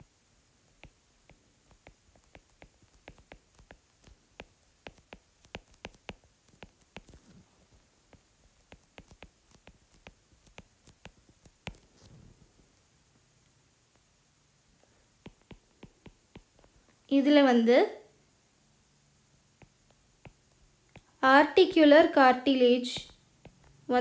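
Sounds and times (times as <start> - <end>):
stylus tapping on glass screen: 0.7 - 7.2, 8.1 - 11.8, 15.2 - 16.7, 19.6 - 21.1.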